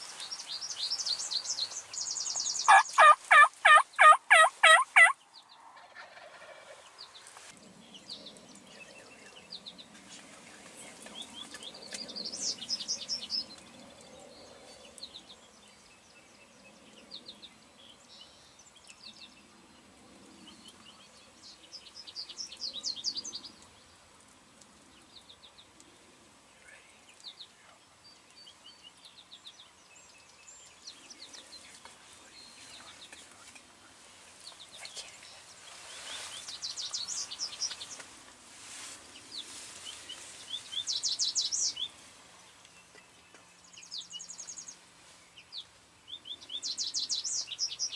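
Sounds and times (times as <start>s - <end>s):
turkeys gobbling: 2.7s - 5.2s, 5.8s - 6.8s.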